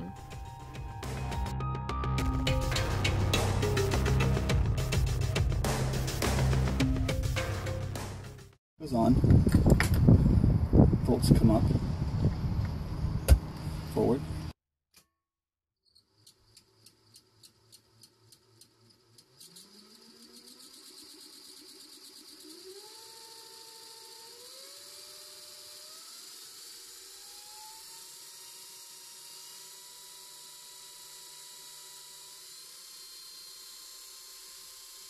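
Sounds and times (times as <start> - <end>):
electric motor ticking: 16.2 - 35.0
electric motor whine: 19.2 - 35.0.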